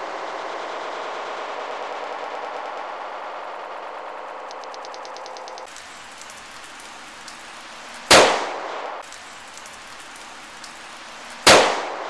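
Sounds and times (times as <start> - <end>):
pistol shots: 8.1 - 9.9, 11.4 - 12.0.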